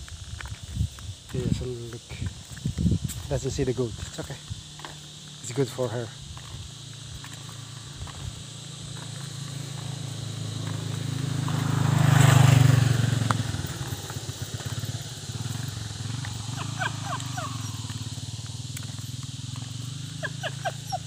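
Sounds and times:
motorcycle passing by: 6.4s - 21.0s.

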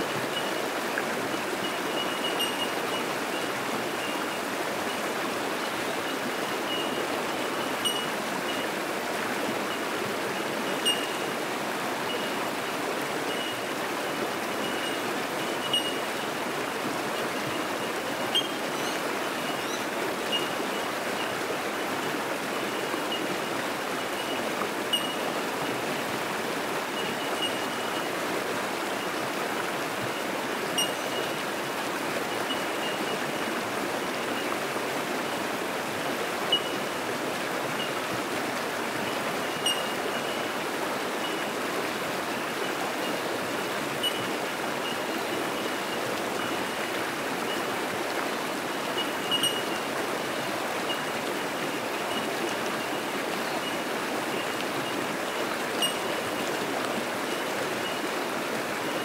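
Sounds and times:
creek rushing over rocks: 0.0s - 59.0s
bellbirds tinkling: 0.3s - 8.7s, 10.5s - 11.4s, 12.1s - 12.4s, 13.2s - 13.7s, 14.6s - 16.4s, 17.2s - 21.4s, 23.0s - 25.4s, 27.0s - 28.2s, 30.7s - 31.6s, 36.5s - 36.9s, 39.1s - 40.6s, 44.0s - 46.8s, 48.9s - 50.0s, 52.0s - 56.5s.

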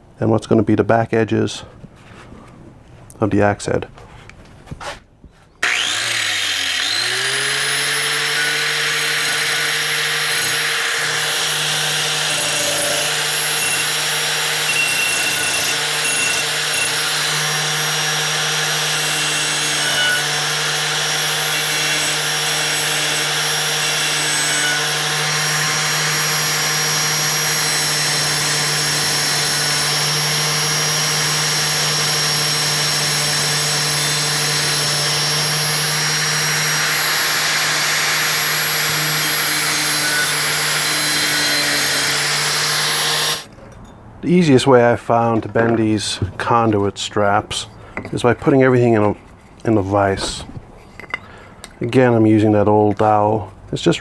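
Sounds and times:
grinding disc rasping on metal: 5.6s - 43.4s
angle grinder motor whine: 5.6s - 43.5s.

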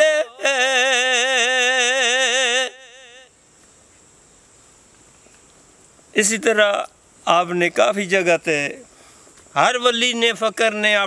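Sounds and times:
man singing with vibrato: 0.0s - 3.4s.

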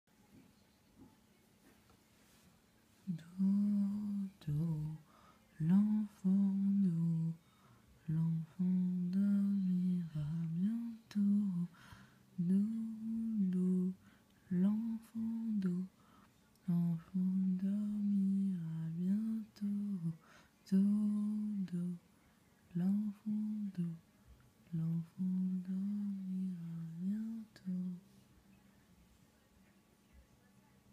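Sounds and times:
woman humming a lullaby: 3.0s - 5.0s, 5.6s - 7.4s, 8.0s - 16.0s, 16.6s - 22.0s, 22.7s - 24.0s, 24.7s - 28.2s.

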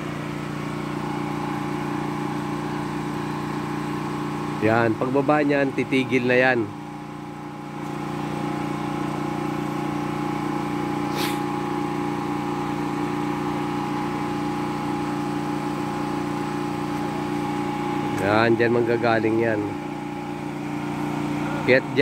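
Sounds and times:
electric water pump humming: 0.0s - 22.0s.

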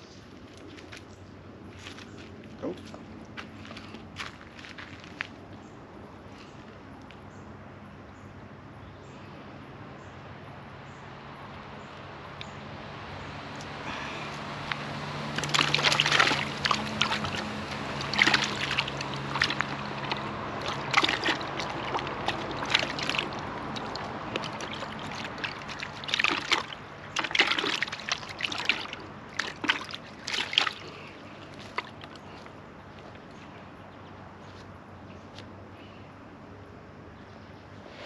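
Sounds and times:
low steady hum: 0.0s - 38.0s
water splashing and sloshing: 13.6s - 33.3s.

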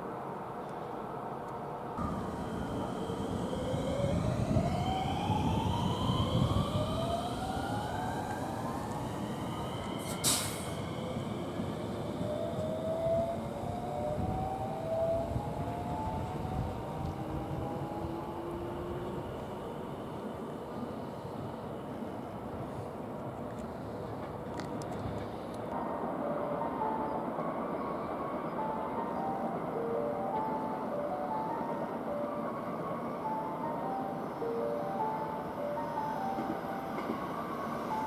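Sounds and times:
electric train motors whining: 2.0s - 19.6s
wheels rumbling on track: 2.0s - 25.8s.

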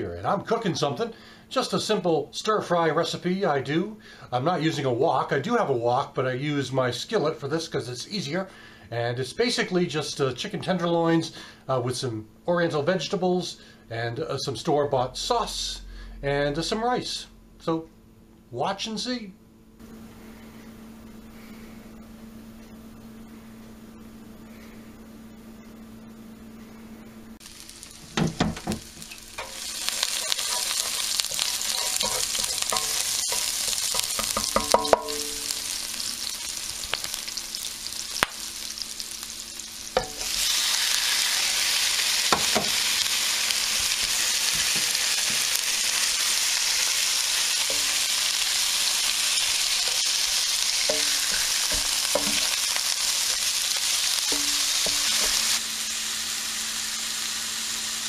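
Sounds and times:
food sizzling in oil: 27.4s - 58.0s
loud steady sizzle of meat: 27.4s - 58.0s.

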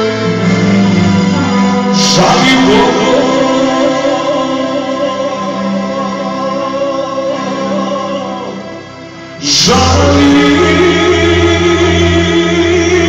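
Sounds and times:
electric keyboard: 0.0s - 13.0s
violin: 0.0s - 13.0s
man singing folk song: 1.9s - 8.6s, 9.4s - 13.0s.

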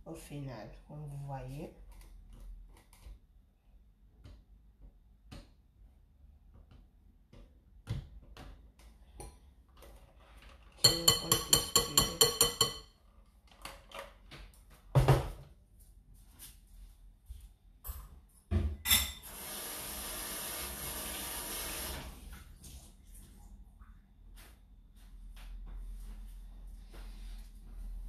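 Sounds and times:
mixer beaters clinking on glass bowl: 10.8s - 12.9s.

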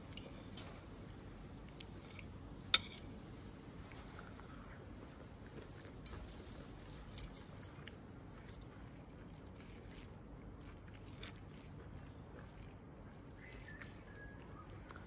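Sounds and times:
faint low background noise: 0.0s - 15.0s
cutlery clinking on a plate: 2.8s - 3.1s.

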